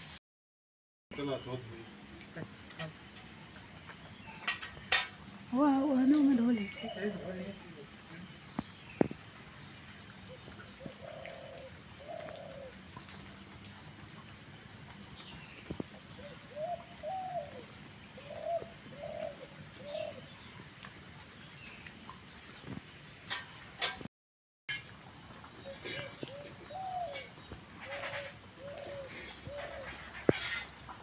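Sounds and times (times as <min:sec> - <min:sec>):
dove cooing: 0:10.3 - 0:12.8, 0:16.1 - 0:20.3, 0:25.7 - 0:30.7.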